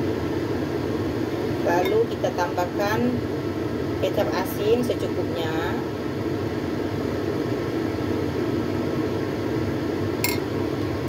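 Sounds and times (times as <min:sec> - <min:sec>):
low mechanical hum: 0:00.0 - 0:11.0
short clink: 0:10.2 - 0:10.5.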